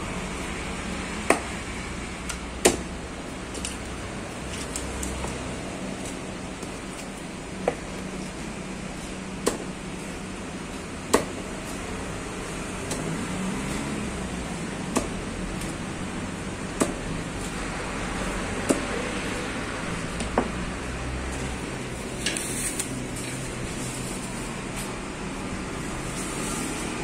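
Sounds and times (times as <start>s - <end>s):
knife chopping fish on wood: 11.1s - 11.4s, 16.8s - 17.0s.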